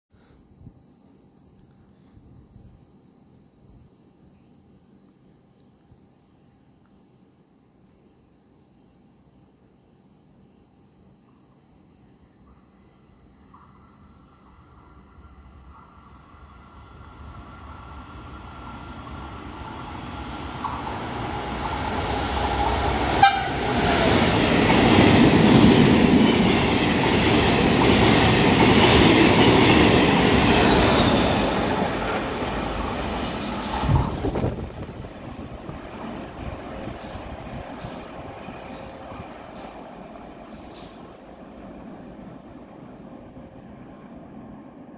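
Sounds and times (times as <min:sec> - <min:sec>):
crickets trilling: 0:00.1 - 0:42.8
train passing at speed: 0:14.4 - 0:44.9.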